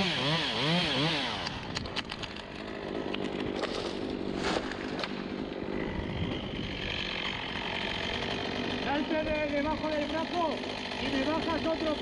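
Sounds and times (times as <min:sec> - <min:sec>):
chainsaw running and revving: 0:00.0 - 0:12.0
sharp clicks and cracks: 0:01.4 - 0:03.8.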